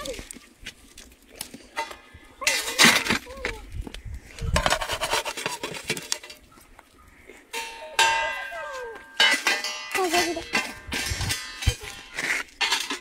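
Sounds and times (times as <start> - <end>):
metal shovel scraping and clattering: 1.8 - 3.5, 4.5 - 6.4, 7.5 - 13.0
sharp metallic clang: 7.6 - 11.7.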